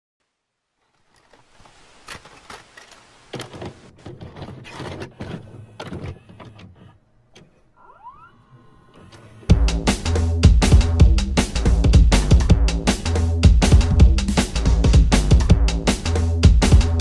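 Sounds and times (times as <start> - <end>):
mechanical clicks and clunks: 1.0 - 9.5
mechanism whirring: 4.4 - 9.6.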